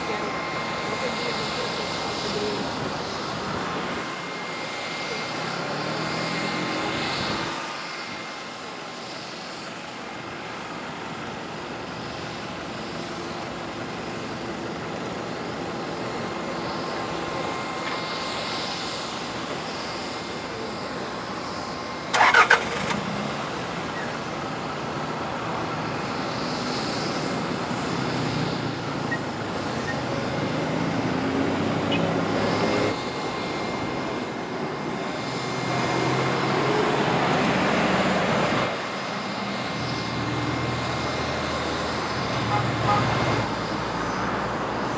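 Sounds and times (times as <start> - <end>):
aircraft and vehicle engines droning: 0.0 - 44.9
thin steady whine: 0.0 - 44.9.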